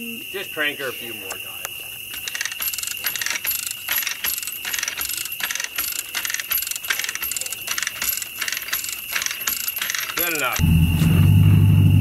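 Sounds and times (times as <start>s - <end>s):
chain hoist clicking: 2.1s - 10.6s.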